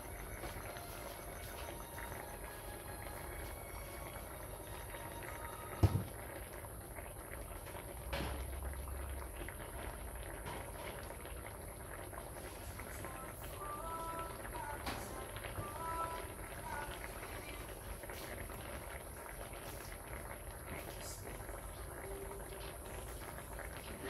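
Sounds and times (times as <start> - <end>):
sauce bubbling in wok: 0.0 - 24.0
sharp knock: 5.8 - 6.1.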